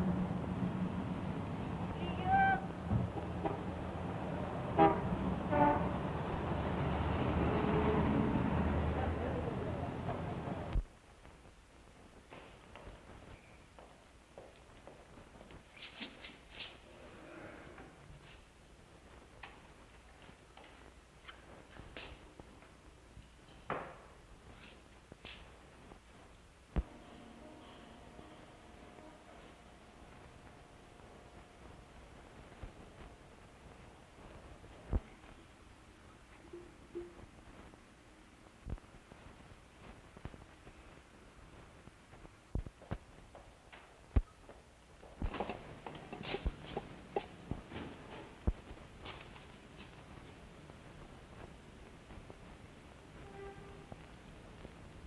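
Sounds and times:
street traffic hum: 0:00.0 - 0:13.2, 0:26.4 - 0:42.5, 0:43.3 - 0:55.0
car horns tooting: 0:02.0 - 0:03.8, 0:04.7 - 0:06.1.

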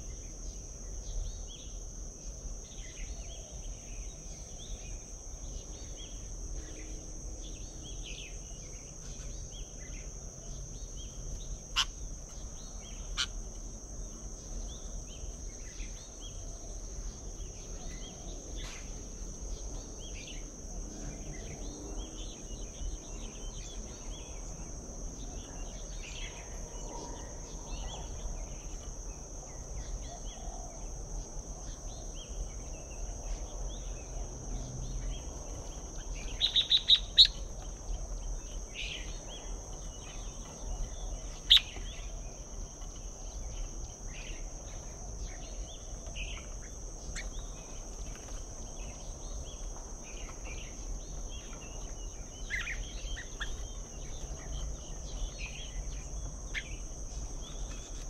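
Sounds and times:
bird chirps and calls: 0:36.2 - 0:37.6, 0:40.8 - 0:42.0.

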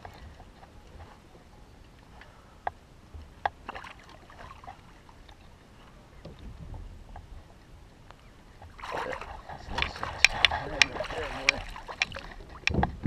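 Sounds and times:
soft low rumble: 0:04.6 - 0:13.0.

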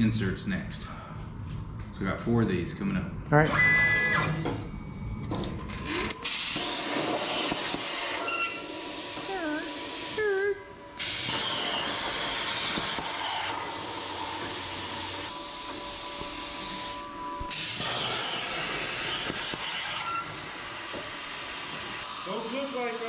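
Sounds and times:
plasma torch hissing: 0:11.0 - 0:15.3, 0:15.9 - 0:23.0.

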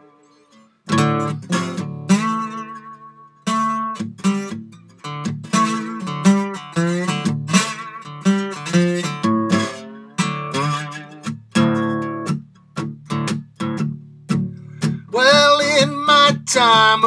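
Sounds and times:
slide acoustic guitar: 0:00.0 - 0:17.0
man singing: 0:15.1 - 0:17.0.

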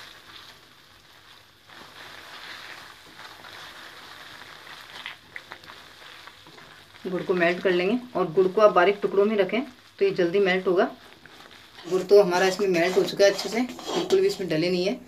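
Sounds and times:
soft sizzle: 0:00.0 - 0:15.0
metal spatula scraping pan: 0:11.4 - 0:14.6.

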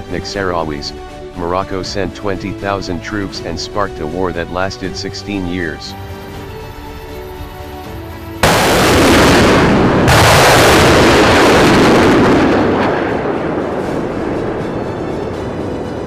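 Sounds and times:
quiet background music: 0:00.0 - 0:10.1
large explosions rumbling: 0:08.4 - 0:14.9.

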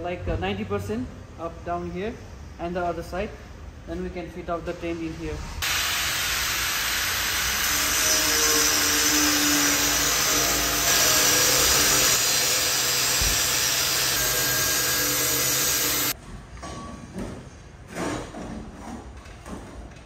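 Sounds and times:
angle grinder cutting steel: 0:05.6 - 0:16.2.

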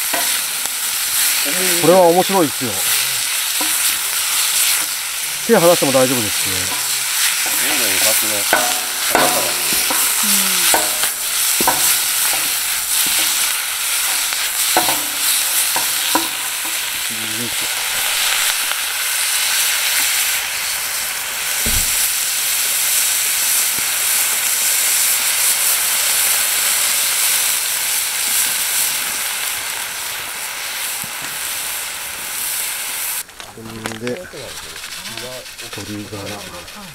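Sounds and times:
vegetables sizzling in a wok: 0:00.0 - 0:36.9
metal ladle scraping a wok: 0:02.8 - 0:20.5.

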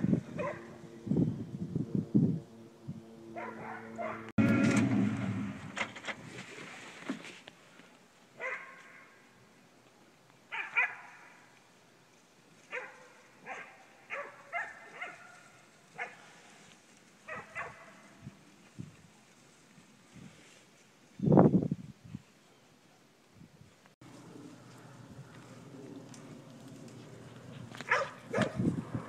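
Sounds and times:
puppies barking: 0:03.4 - 0:04.3, 0:27.6 - 0:28.7.

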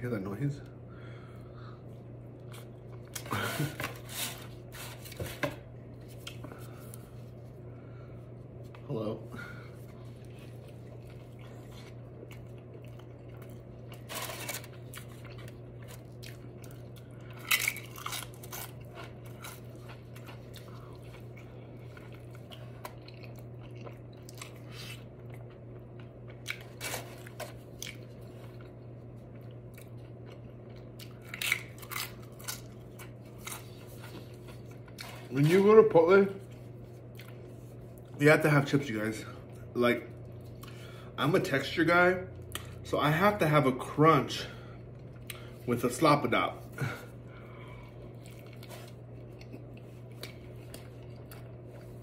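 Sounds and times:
steady low hum: 0:00.0 - 0:52.0
chewing and biting food: 0:09.8 - 0:35.8, 0:47.8 - 0:52.0.

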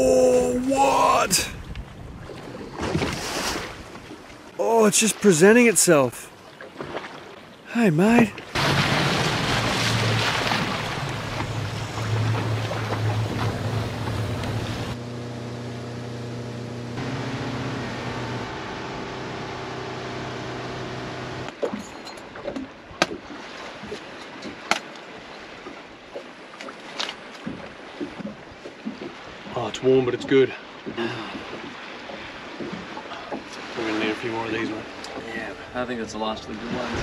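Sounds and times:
wind and water rushing: 0:00.0 - 0:15.4, 0:17.0 - 0:37.0
motorboat engine running: 0:08.6 - 0:23.2.

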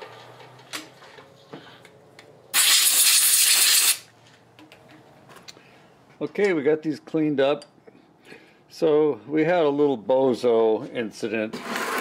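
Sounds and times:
compressed air hissing: 0:02.5 - 0:04.0.

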